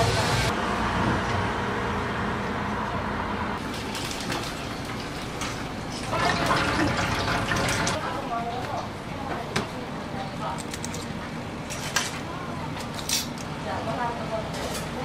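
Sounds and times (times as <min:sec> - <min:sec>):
tap water running: 0:03.6 - 0:08.0.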